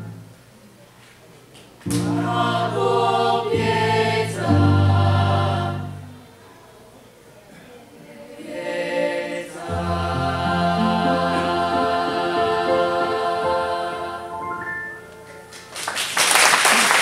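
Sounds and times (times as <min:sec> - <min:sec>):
choir singing: 0:01.9 - 0:06.3, 0:08.0 - 0:15.5
audience applause: 0:15.5 - 0:17.0.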